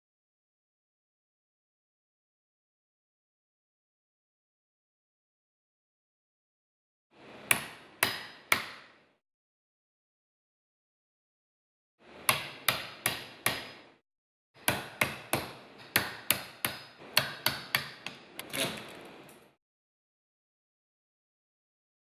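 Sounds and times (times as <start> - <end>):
hammer striking chisel: 7.5 - 9.0, 12.2 - 14.0, 14.6 - 18.6.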